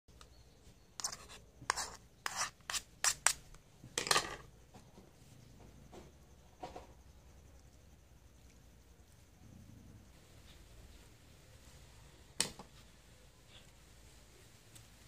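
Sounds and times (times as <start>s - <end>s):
chili peppers scraped into bowl: 1.0s - 3.4s.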